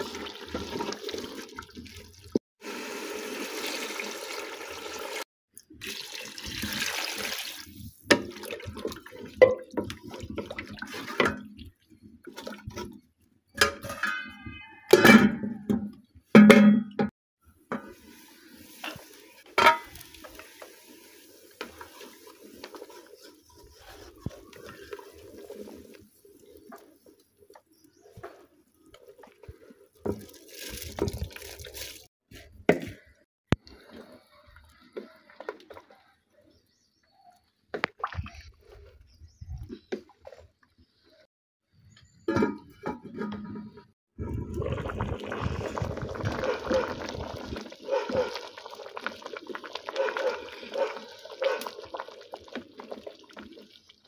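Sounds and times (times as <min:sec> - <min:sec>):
wooden spoon scraping a pot: 0:17.7 - 0:27.2
liquid sloshing: 0:44.2 - 0:54.0.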